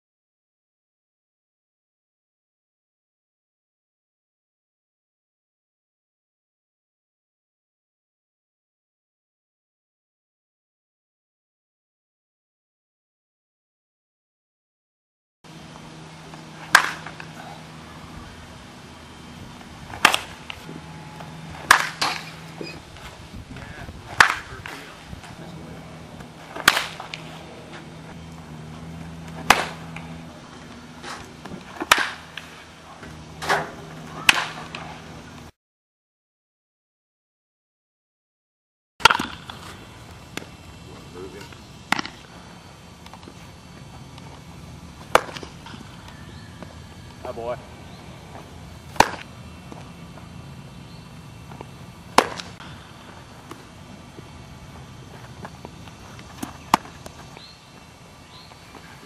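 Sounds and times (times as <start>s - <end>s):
low background noise: 15.5s - 35.5s, 39.0s - 59.0s
bat cracking baseballs: 15.6s - 35.5s, 39.0s - 59.0s.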